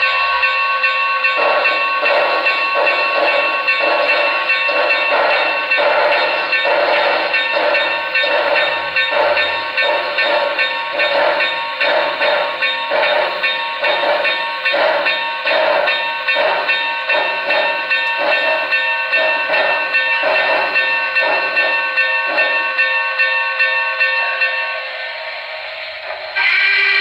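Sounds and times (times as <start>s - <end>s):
model steam locomotive chuffs: 0.0s - 27.0s
loud steady tone: 26.3s - 27.0s.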